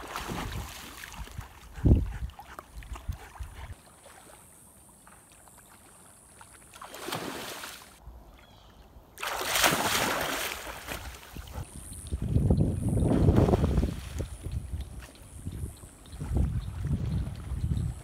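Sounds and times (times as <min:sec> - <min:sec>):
dog splashing in water: 0:00.0 - 0:01.5, 0:05.4 - 0:07.8, 0:09.2 - 0:11.4
water swish: 0:00.0 - 0:08.0, 0:09.2 - 0:11.6.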